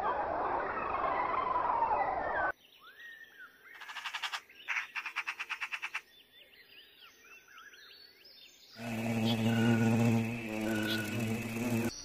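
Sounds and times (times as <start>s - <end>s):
small birds calling: 2.6s - 12.0s.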